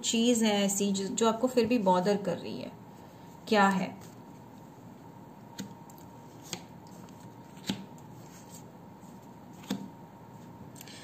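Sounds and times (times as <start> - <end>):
cards snapping onto a table: 7.6 - 7.9, 9.6 - 9.9.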